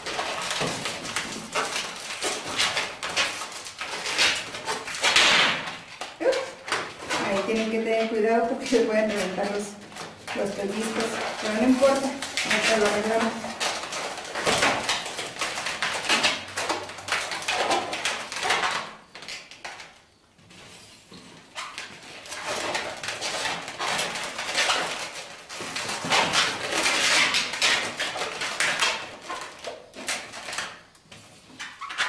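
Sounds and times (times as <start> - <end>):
balloons squeaking and rubbing: 8.8 - 14.5.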